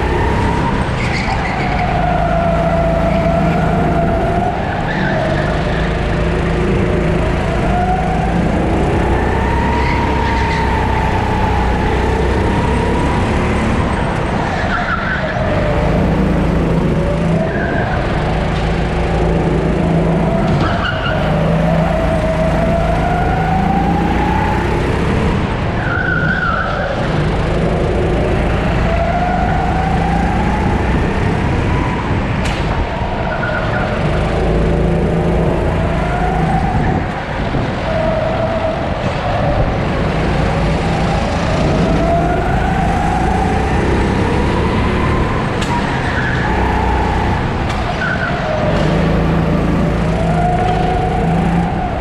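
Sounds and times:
go-kart engine revving: 0:00.0 - 0:52.0.

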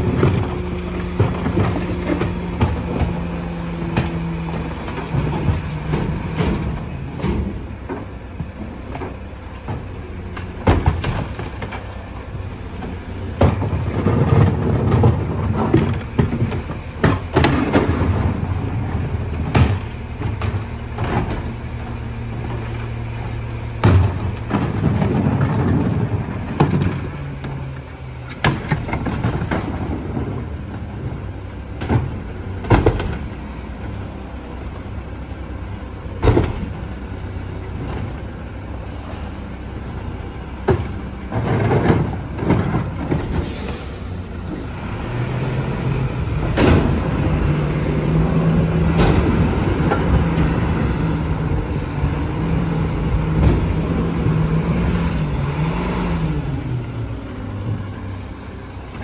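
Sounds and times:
garbage truck diesel engine: 0:00.0 - 0:59.0
plastic bins banging on metal: 0:13.2 - 0:21.6, 0:23.8 - 0:27.3, 0:40.7 - 0:43.5.

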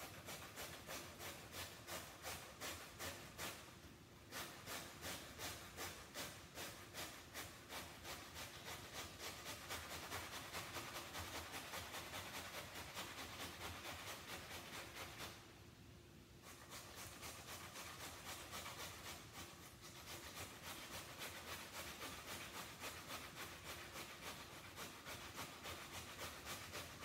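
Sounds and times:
potato scraping on metal grater: 0:00.0 - 0:15.4, 0:16.4 - 0:27.0.

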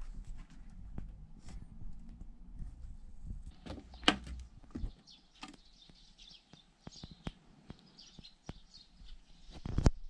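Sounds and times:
birds chirping faintly: 0:02.8 - 0:10.0
wooden boards shifting underfoot: 0:03.5 - 0:05.6.

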